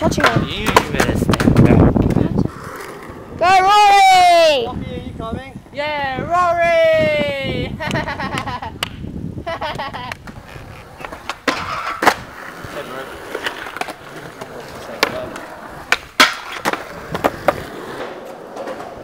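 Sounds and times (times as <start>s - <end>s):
skateboard clacking on ground: 0.0s - 4.0s, 7.8s - 9.0s, 9.6s - 19.0s
skateboard wheels rolling on concrete: 0.0s - 19.0s.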